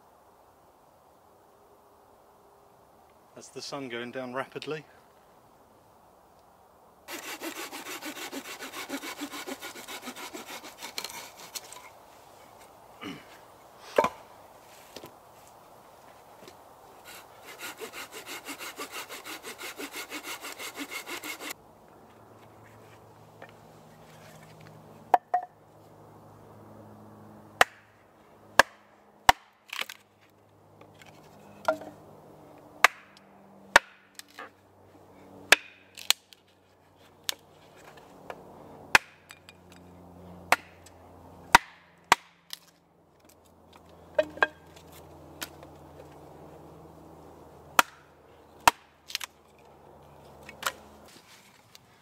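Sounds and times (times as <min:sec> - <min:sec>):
hatchet chopping wood: 0:07.1 - 0:11.8, 0:17.1 - 0:21.5, 0:27.6 - 0:27.9, 0:28.6 - 0:30.0, 0:32.8 - 0:34.2, 0:35.5 - 0:36.2, 0:38.9 - 0:39.5, 0:40.5 - 0:40.8, 0:41.5 - 0:42.7, 0:47.8 - 0:49.4.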